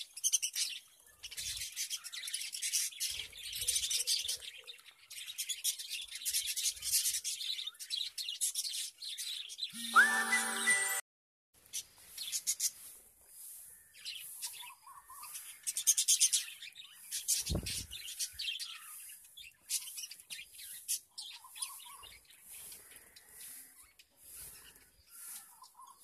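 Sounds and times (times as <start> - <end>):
budgerigars chirping and chattering: 11.8 - 26.0.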